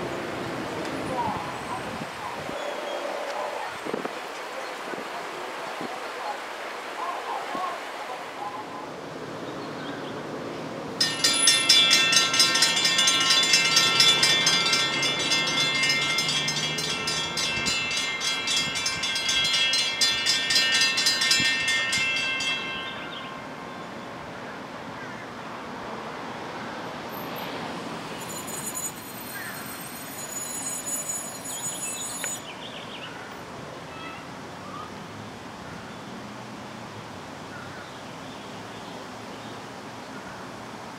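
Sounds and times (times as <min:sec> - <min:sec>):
railroad crossing bells ringing: 0:11.0 - 0:24.4, 0:27.1 - 0:33.2.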